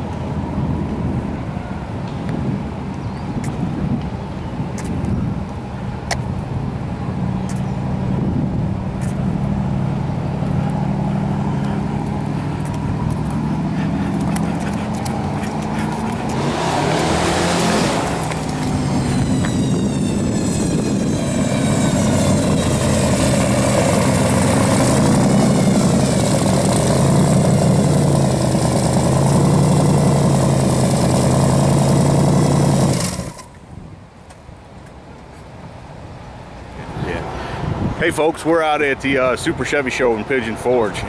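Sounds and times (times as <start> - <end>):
supercharger whine: 6.6 - 33.6
car engine running loud: 6.7 - 33.5.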